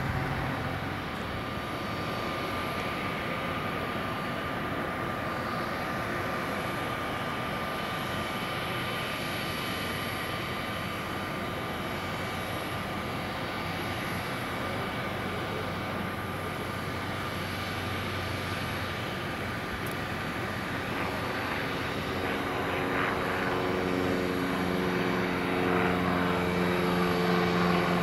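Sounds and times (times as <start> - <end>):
light aircraft engine droning: 0.0 - 28.0.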